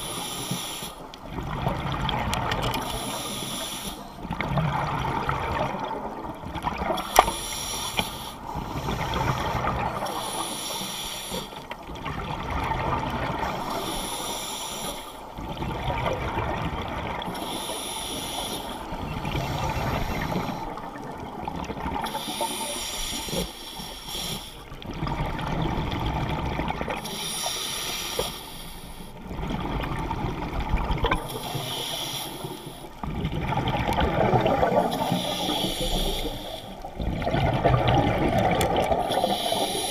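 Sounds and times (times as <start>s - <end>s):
regulator breathing hiss: 0.0s - 1.1s, 2.8s - 4.2s, 7.1s - 9.1s, 10.0s - 11.6s, 13.5s - 15.3s, 17.3s - 18.9s, 22.0s - 24.7s, 27.1s - 29.2s, 31.3s - 32.9s, 34.9s - 36.9s, 39.0s - 39.9s
rush of bubbles: 4.3s - 7.0s, 29.3s - 31.3s, 33.0s - 39.9s.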